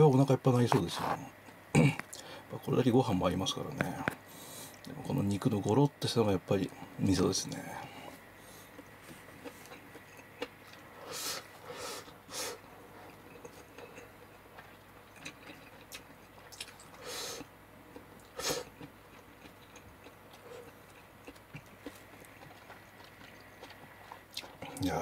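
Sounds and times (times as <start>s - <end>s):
person chewing food: 8.4s - 24.9s.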